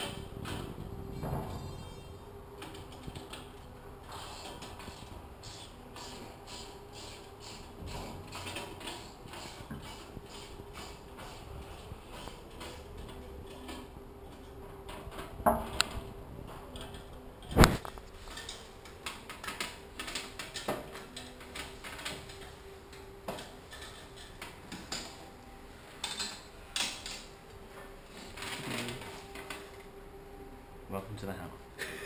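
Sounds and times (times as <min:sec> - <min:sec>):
faint steady hum: 0:00.0 - 0:32.0.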